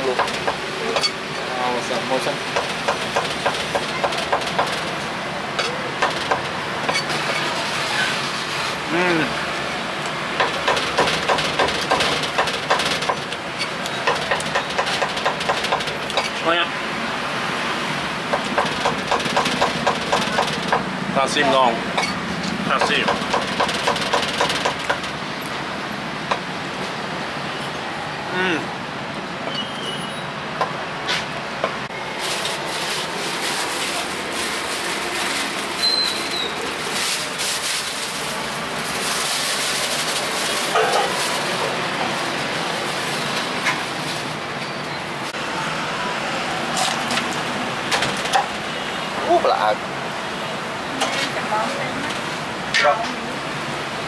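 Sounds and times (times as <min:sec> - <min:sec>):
steady background noise: 0:00.0 - 0:54.0
street noise: 0:00.0 - 0:54.0
rough scraping and rustling: 0:31.9 - 0:44.4.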